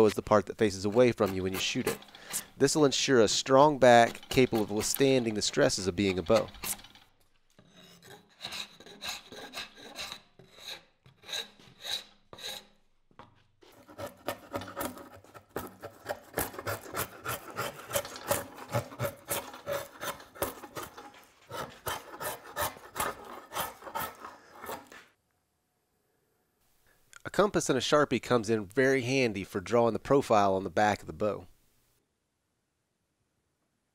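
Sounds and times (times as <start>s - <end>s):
drawknife scraping wood: 0.0s - 12.8s, 13.6s - 25.1s.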